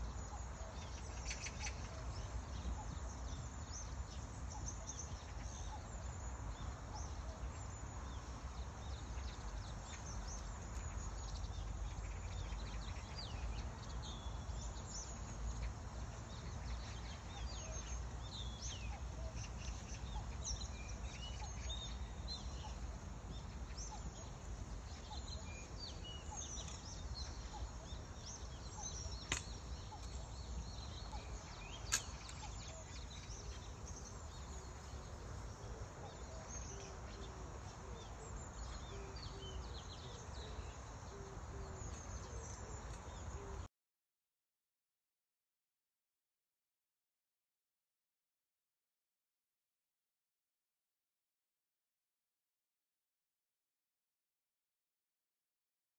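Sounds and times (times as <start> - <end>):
small birds chirping: 0.0 - 43.7.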